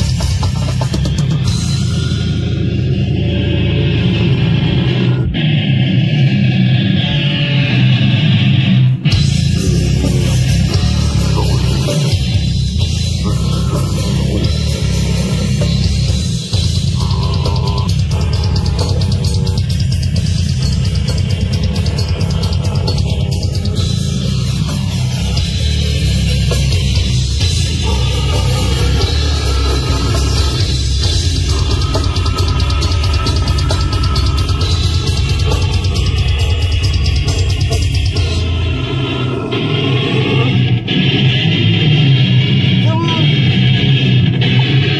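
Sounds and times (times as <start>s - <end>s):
bass guitar: 0.0s - 44.9s
distorted electric guitars: 0.0s - 44.9s
drums: 0.0s - 44.9s
man growling into microphone: 9.2s - 37.3s, 38.1s - 41.3s.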